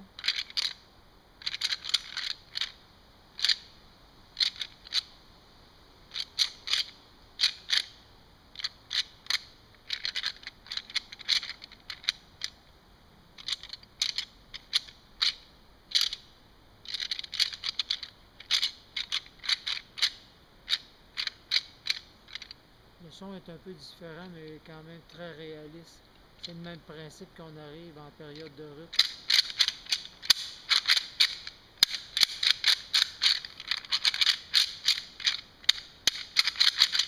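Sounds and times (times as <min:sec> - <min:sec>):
rattle bag clicking and clattering: 0:28.4 - 0:37.0.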